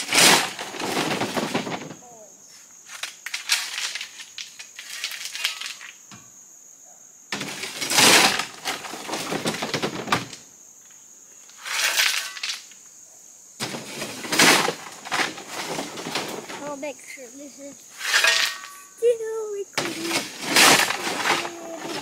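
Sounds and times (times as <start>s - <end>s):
shovel scraping into rocks: 11.6s - 12.4s, 17.9s - 18.8s, 19.8s - 22.0s
rocks clattering onto ground: 13.6s - 16.7s, 19.8s - 22.0s.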